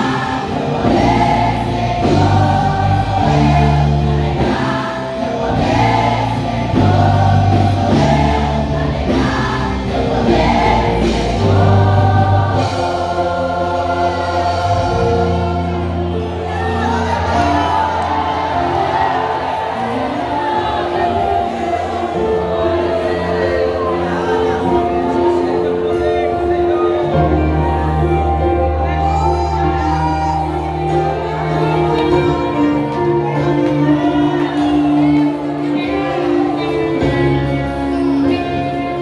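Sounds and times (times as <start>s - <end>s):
bass line: 0.0s - 19.1s
women's choir singing gospel: 0.0s - 39.0s.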